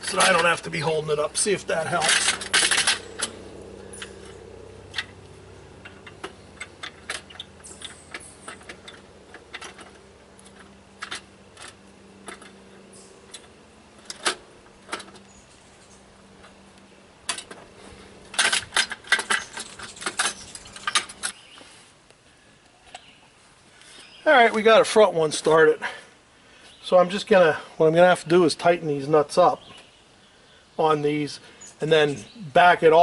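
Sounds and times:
metal exhaust pipe and tools clinking: 0:00.0 - 0:21.4.

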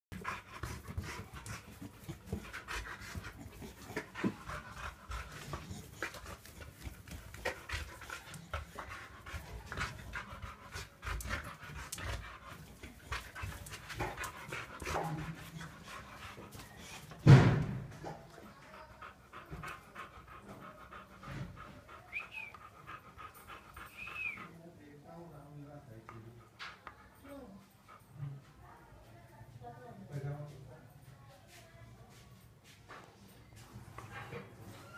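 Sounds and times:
dog panting: 0:00.1 - 0:28.7
loud thump: 0:17.2 - 0:18.0.

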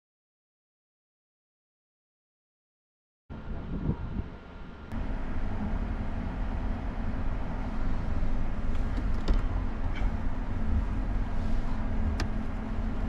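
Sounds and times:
low rumble inside parked car: 0:03.3 - 0:13.0.

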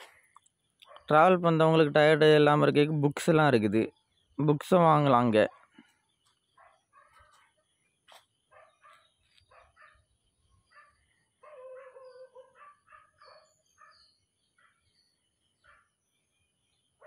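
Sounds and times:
faint bird chirps: 0:03.7 - 0:17.0.

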